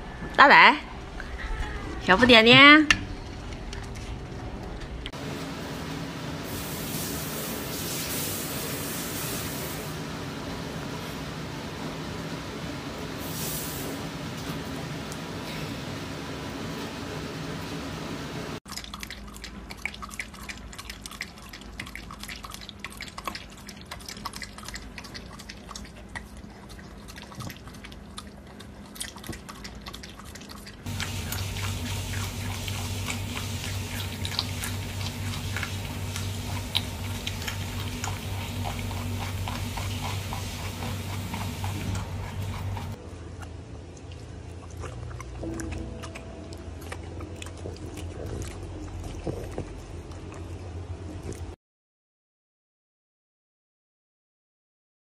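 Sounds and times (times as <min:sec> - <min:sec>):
dog lapping from metal bowl: 0:18.7 - 0:43.0, 0:44.2 - 0:50.6
low hum: 0:30.9 - 0:51.3.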